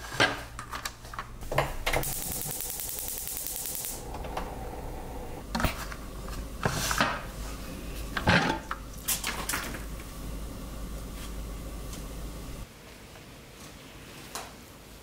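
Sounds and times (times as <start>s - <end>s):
pressure cooker hiss: 2.0s - 5.4s.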